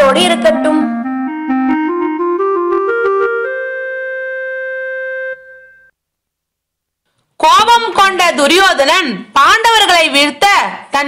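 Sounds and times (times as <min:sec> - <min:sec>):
keyboard music: 0:00.0 - 0:06.0.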